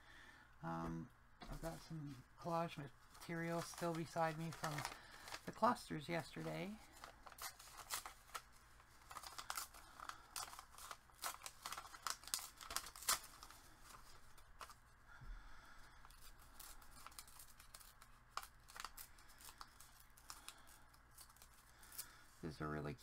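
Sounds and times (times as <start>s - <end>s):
paper scraps rustling and crinkling: 3.1s - 14.8s.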